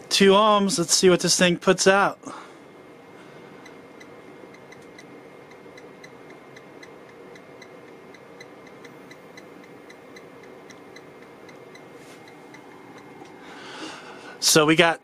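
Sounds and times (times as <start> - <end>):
steady hum: 0.0 - 15.0
light ticking: 3.6 - 13.4.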